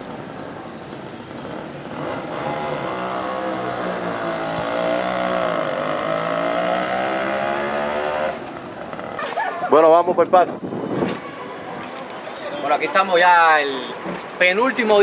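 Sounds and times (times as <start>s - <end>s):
vehicle engine passing: 1.3s - 9.4s.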